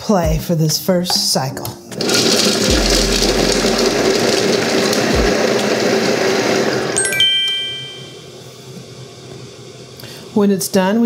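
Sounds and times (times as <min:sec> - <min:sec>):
food processor blade whirring: 0:02.0 - 0:07.0
chime tones: 0:07.0 - 0:08.4.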